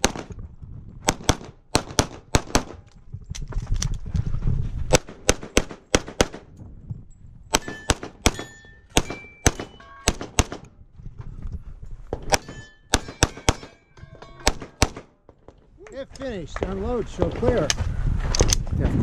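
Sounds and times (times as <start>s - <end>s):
rapid pistol shots: 1.1s - 2.8s, 4.9s - 6.5s, 7.5s - 10.6s, 12.3s - 13.8s, 14.4s - 15.2s
ring of struck steel targets: 7.6s - 10.4s, 12.3s - 15.1s.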